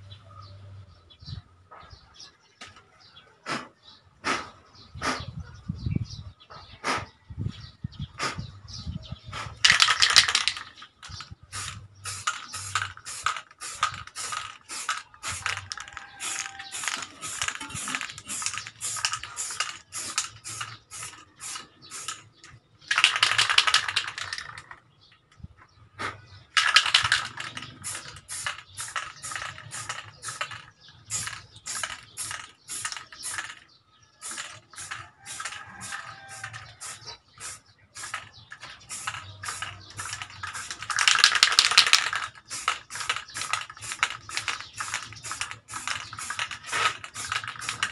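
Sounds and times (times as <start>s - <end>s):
aerosol can spraying: 9.6s - 22.3s, 26.6s - 33.6s, 34.2s - 47.9s.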